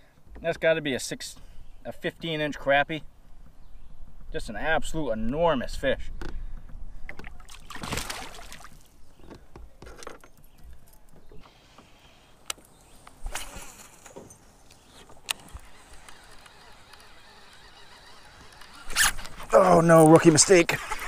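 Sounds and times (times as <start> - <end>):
clicks and knocks of fishing gear: 9.1 - 11.4, 12.4 - 17.1.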